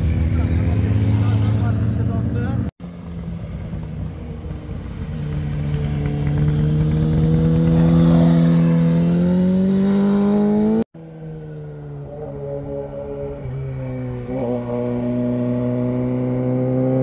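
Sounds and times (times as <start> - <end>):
distant motorcycle engine: 0.0 - 17.0
motorcycle accelerating past: 4.5 - 17.0.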